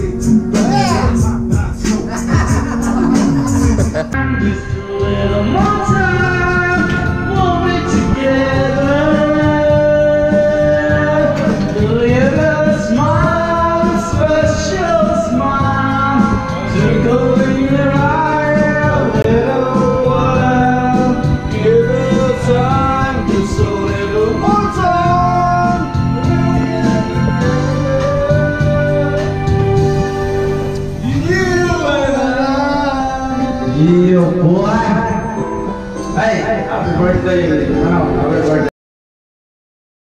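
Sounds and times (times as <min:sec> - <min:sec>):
man singing into a microphone: 0:00.0 - 0:37.8
backing track music: 0:00.0 - 0:38.7.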